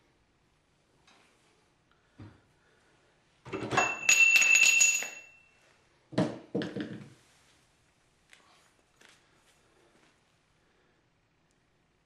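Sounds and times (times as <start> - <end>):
metal pipe clanking and ringing: 3.5 - 5.5.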